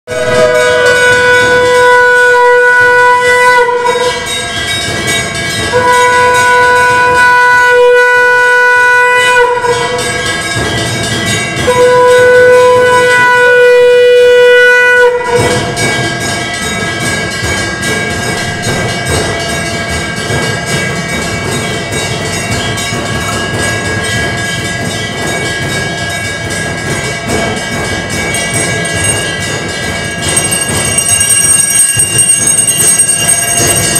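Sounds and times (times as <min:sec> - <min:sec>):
conch shell blasts: 0:00.1 - 0:04.7, 0:05.6 - 0:10.6, 0:11.4 - 0:16.2
hand bell ringing rapidly: 0:03.8 - 0:07.2, 0:09.6 - 0:12.7, 0:15.3 - 0:33.9.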